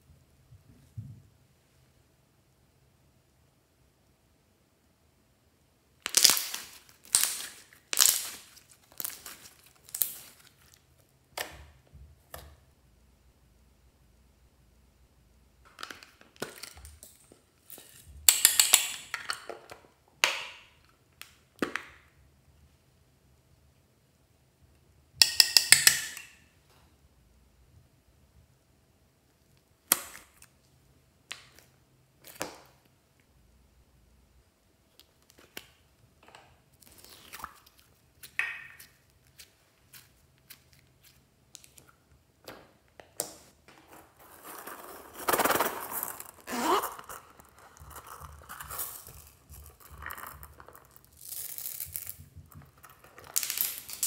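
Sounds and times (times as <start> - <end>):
slime squelching and popping: 6.0 - 11.7, 36.7 - 43.2.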